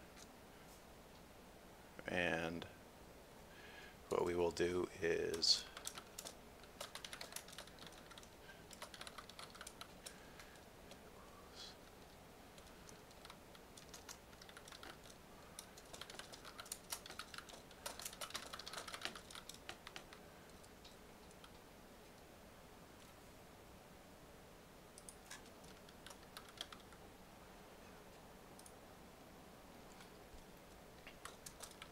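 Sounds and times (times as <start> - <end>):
typing on keyboard: 5.3 - 11.0, 12.6 - 21.6, 25.0 - 27.0, 31.0 - 31.9.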